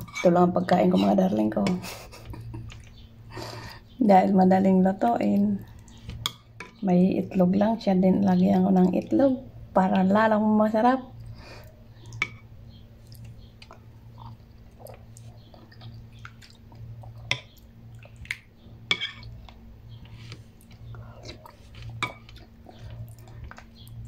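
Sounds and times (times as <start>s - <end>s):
steady low hum: 0.0s - 24.0s
person chewing: 13.0s - 24.0s.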